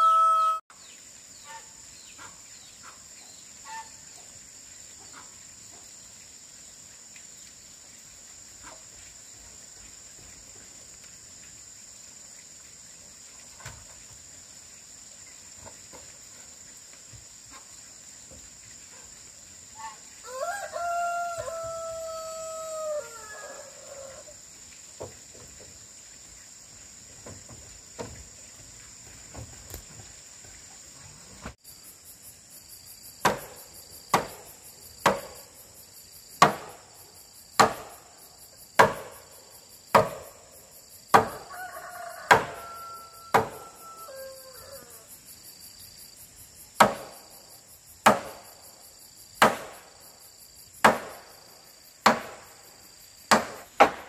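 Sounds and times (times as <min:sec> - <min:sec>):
rooster crowing: 0:00.0 - 0:00.6, 0:20.2 - 0:24.4, 0:41.2 - 0:45.1
insect drone: 0:00.0 - 0:54.0.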